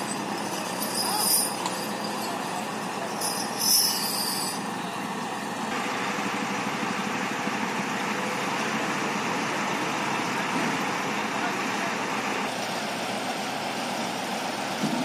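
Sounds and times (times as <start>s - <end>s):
high-pitched squeals: 0.0s - 4.7s
truck diesel engine under load: 0.0s - 15.0s.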